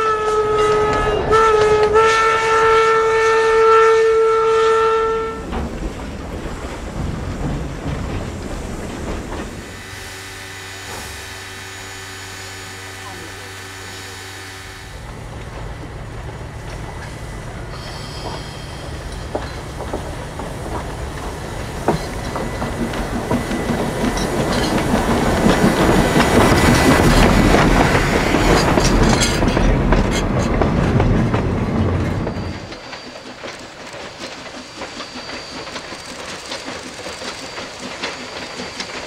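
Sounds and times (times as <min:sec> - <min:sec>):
steam locomotive passing: 0:00.0 - 0:39.0
wheels clattering over rail joints: 0:05.3 - 0:09.8, 0:15.0 - 0:39.0
thin wheel squeal: 0:17.7 - 0:19.2, 0:32.2 - 0:39.0.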